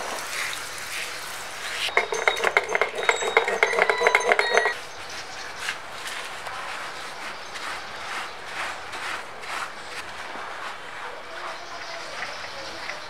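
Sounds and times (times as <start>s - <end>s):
water spraying on metal: 0.0s - 4.7s
brush scrubbing metal rotor: 1.7s - 5.3s, 6.2s - 13.0s.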